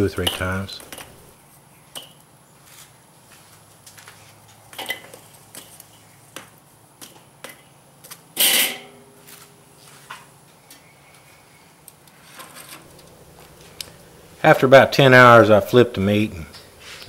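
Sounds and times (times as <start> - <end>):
charcoal clatter: 0.0 - 1.3, 12.0 - 14.5
charcoal clinking in a grill: 0.0 - 1.3, 4.7 - 9.2, 12.0 - 15.4.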